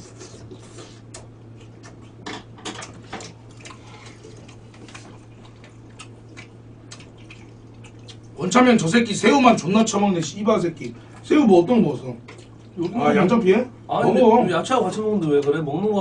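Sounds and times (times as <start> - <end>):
chewing: 0.0 - 2.2, 2.8 - 8.4
steady low hum: 0.0 - 16.0.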